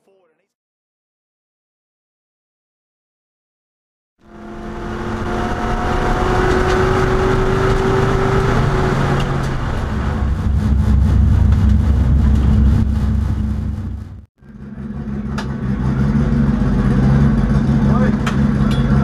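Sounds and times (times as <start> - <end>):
race car engine: 4.2 - 19.0.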